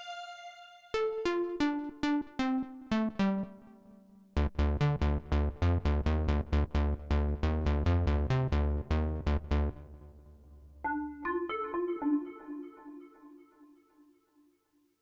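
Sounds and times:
synthesizer plucked notes: 10.8s - 13.8s.

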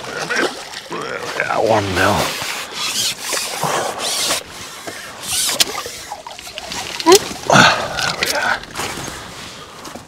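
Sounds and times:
rubbing and scraping: 2.1s - 7.4s.

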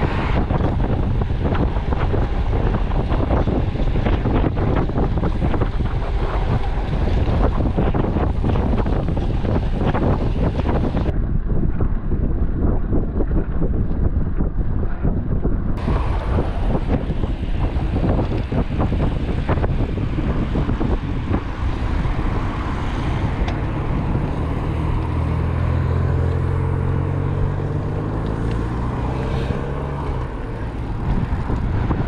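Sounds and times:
vehicle engine running: 0.0s - 11.1s, 15.8s - 32.0s
wind buffeting microphone: 0.0s - 32.0s.

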